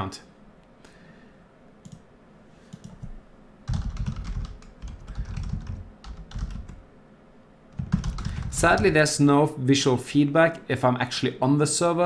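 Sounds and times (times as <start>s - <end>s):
typing on a keyboard: 2.7s - 3.1s, 3.7s - 6.8s, 7.8s - 9.0s.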